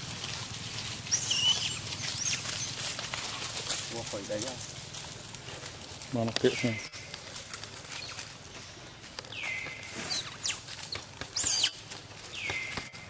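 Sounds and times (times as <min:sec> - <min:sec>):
rustles in dry leaf litter: 0:00.0 - 0:13.0
whistled animal call: 0:01.1 - 0:02.8, 0:09.4 - 0:10.6, 0:11.4 - 0:11.8, 0:12.4 - 0:13.0
sharp high animal call: 0:01.1 - 0:02.9, 0:09.4 - 0:11.8.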